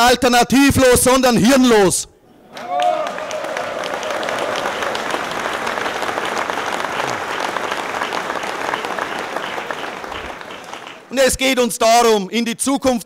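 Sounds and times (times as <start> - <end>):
large crowd applauding: 2.5 - 11.4.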